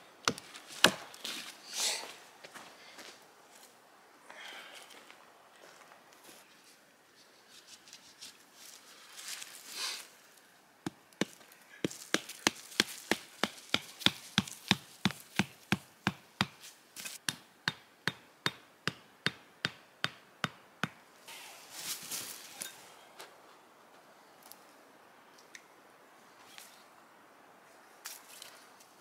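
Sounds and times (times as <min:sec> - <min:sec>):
hatchet knocking wooden stake: 0:10.8 - 0:16.6, 0:17.2 - 0:21.0
rustling: 0:21.3 - 0:22.8.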